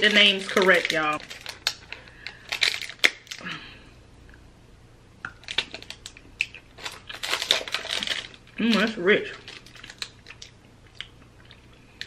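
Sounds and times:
foil wrapper crinkling: 0.0 - 3.4, 5.4 - 10.6.

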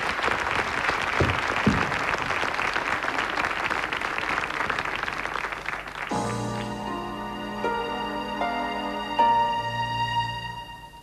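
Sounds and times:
studio audience applauding: 0.0 - 6.8.

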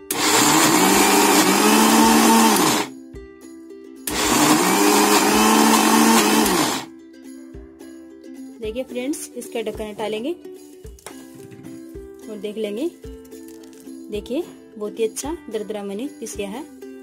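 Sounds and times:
mixer grinder whining: 0.0 - 2.9, 4.1 - 6.9.

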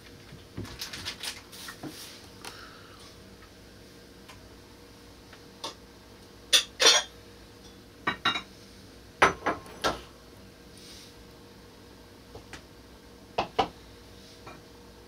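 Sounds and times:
dishes clattering: 6.6 - 7.1.

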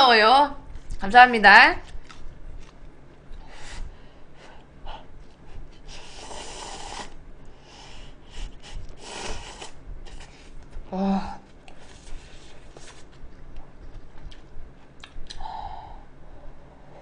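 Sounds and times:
person slurping noodles: 5.9 - 10.4.

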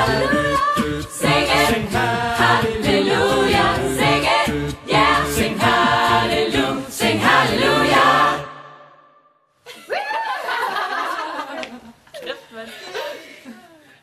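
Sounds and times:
mixed voices singing a cappella: 0.0 - 9.2.

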